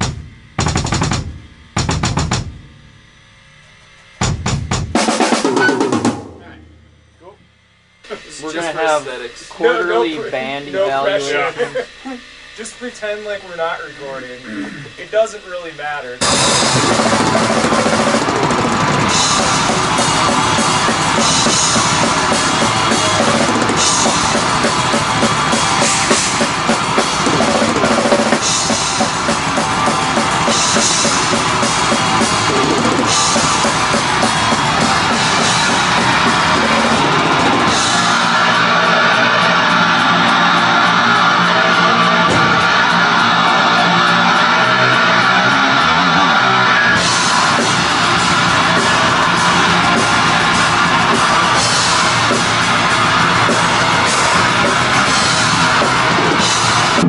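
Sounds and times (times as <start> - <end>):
metal band playing: 0.0 - 2.7, 4.2 - 7.4, 12.6 - 57.0
cymbal crashes: 16.2 - 57.0.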